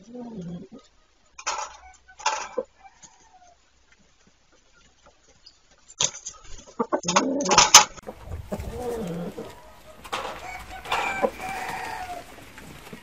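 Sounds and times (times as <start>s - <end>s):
low chicken calls: 0.0s - 3.8s, 6.4s - 13.0s
chicken squawk: 6.4s - 12.8s
rooster wings flapping: 7.4s - 13.0s
high chicken call: 8.0s - 12.4s.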